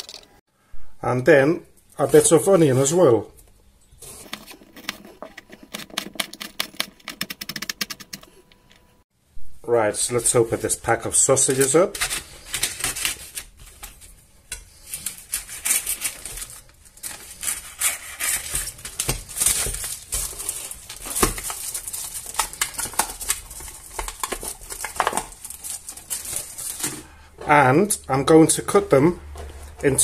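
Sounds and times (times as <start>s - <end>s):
plastic packaging crinkling: 14.8s - 27.0s.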